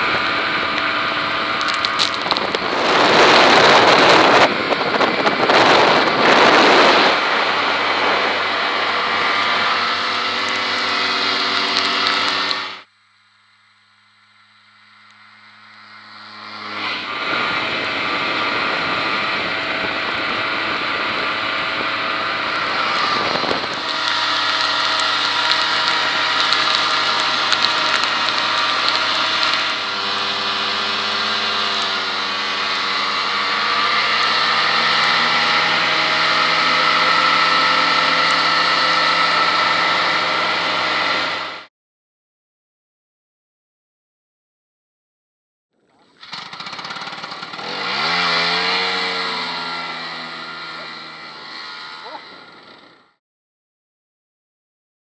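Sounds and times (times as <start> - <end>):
snowmobile engines running: 0.0 - 41.7, 45.8 - 53.2
loud rushing noise: 2.4 - 10.0.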